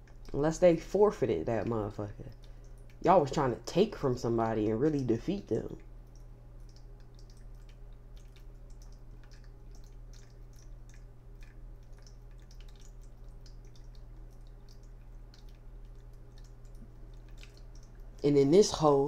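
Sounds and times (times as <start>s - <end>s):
light clicks and ticks: 0.0s - 0.7s, 4.8s - 19.0s.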